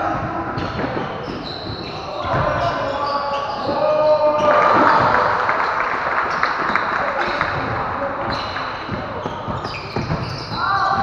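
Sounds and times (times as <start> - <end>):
footsteps and shoe squeaks: 0.0 - 5.0, 6.3 - 11.0
players calling out: 0.0 - 11.0
basketball bouncing: 6.3 - 11.0.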